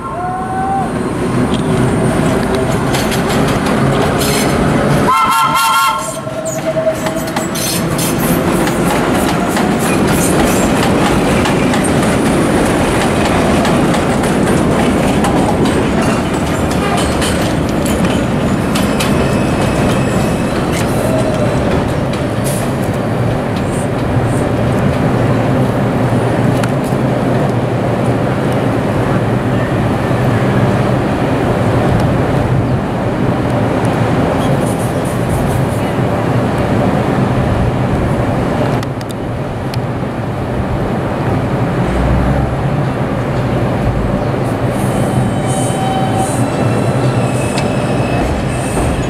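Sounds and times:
train wheels on rails: 0:00.5 - 0:49.0
wheels clattering over rail joints: 0:01.5 - 0:05.1, 0:06.2 - 0:25.1.

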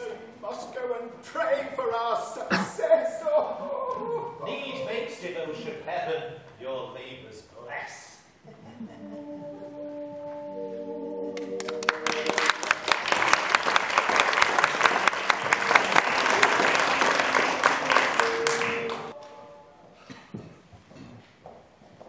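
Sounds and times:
held notes of music: 0:09.0 - 0:12.3
audience applauding: 0:11.4 - 0:19.4.

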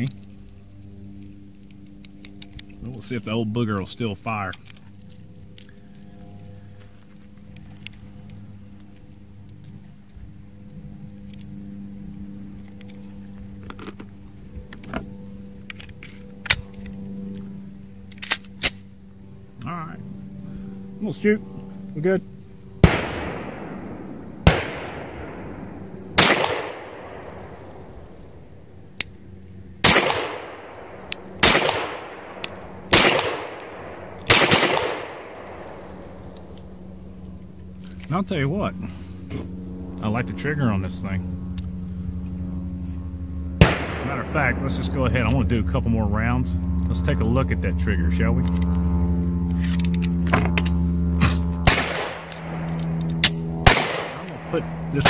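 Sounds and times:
cartridges clicking into magazine: 0:00.0 - 0:03.0, 0:03.7 - 0:14.1, 0:18.0 - 0:18.9, 0:24.4 - 0:38.1, 0:51.7 - 0:54.8
steady low hum: 0:00.0 - 0:55.0
pistol slide locking back: 0:18.1 - 0:18.8
pistol shots with echo: 0:22.8 - 0:28.6, 0:29.8 - 0:36.4, 0:43.6 - 0:45.3, 0:51.6 - 0:55.0
faint sharp cracks: 0:29.8 - 0:38.1
pistol slide clacks: 0:29.9 - 0:36.7.

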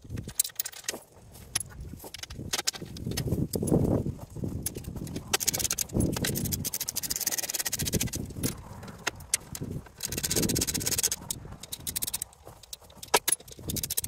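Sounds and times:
metal clicking and knocking: 0:00.0 - 0:03.8, 0:04.6 - 0:14.0
rapid clicks: 0:04.6 - 0:14.0.

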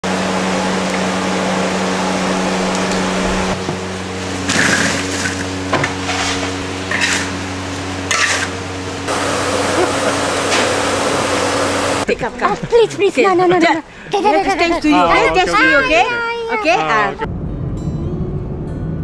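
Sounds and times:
steady low hum: 0:00.0 - 0:19.0
metal ladle scraping wok: 0:06.0 - 0:07.4, 0:08.0 - 0:08.6.

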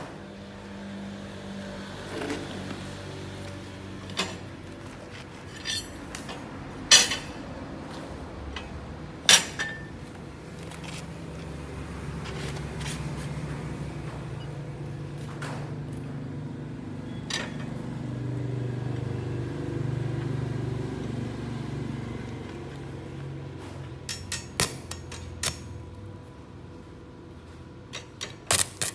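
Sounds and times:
metallic clinks of steel plates: 0:05.6 - 0:06.0.

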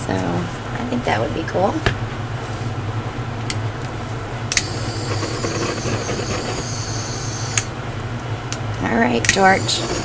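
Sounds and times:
butane torch clicking on: 0:04.5 - 0:07.7
torch flame hissing: 0:04.6 - 0:07.7, 0:09.5 - 0:10.0.

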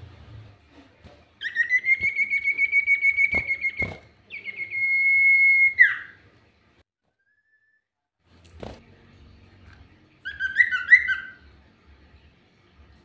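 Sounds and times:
bird whistling: 0:01.4 - 0:06.2, 0:10.2 - 0:11.4.

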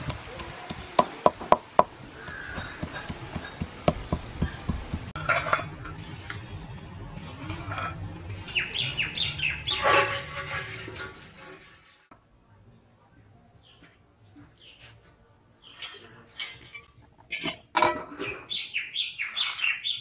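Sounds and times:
bird chirps: 0:07.5 - 0:09.9.

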